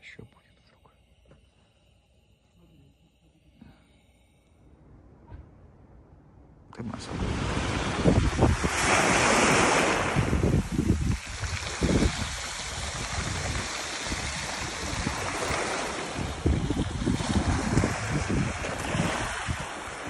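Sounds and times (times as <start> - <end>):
wind gusting on microphone: 6.9 - 20.0
waves breaking on pebble beach: 7.0 - 20.0.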